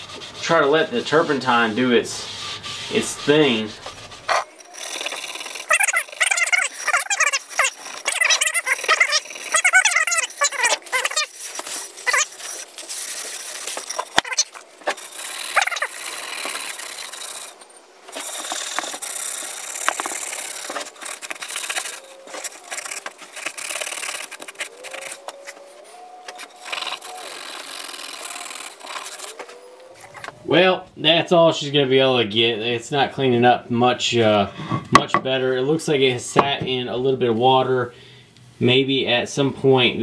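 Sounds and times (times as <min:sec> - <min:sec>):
scouring pad scrubbing wood: 0:00.0 - 0:16.9
squeaky scrubbing strokes: 0:00.0 - 0:30.7.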